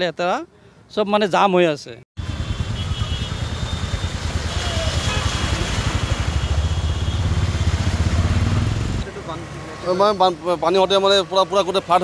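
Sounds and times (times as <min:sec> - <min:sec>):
wheels splashing through water: 0:02.2 - 0:09.7
water rushing: 0:03.3 - 0:09.8.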